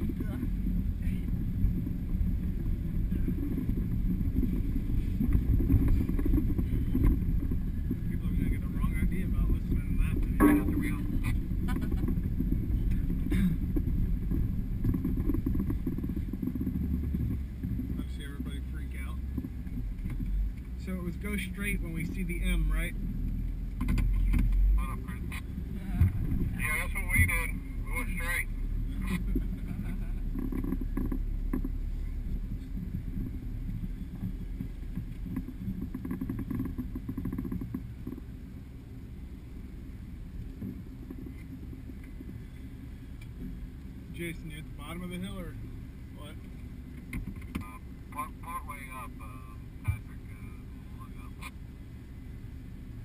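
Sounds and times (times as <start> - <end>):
engine running at low speed: 0.0 - 53.0
rattling and knocking from body: 0.1 - 18.2, 29.4 - 38.3.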